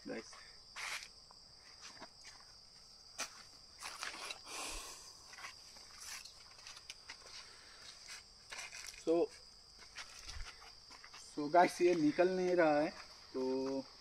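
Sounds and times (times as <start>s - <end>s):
high-pitched insect drone: 0.0s - 14.0s
footsteps rustling: 5.2s - 13.8s.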